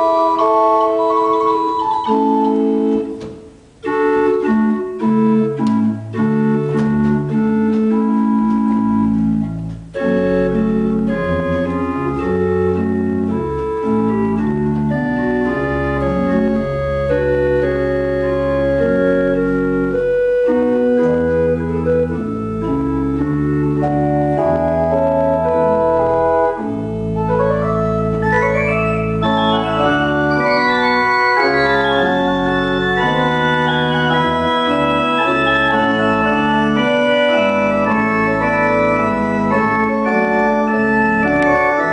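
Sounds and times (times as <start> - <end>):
pipe organ playing: 0.0 - 41.9.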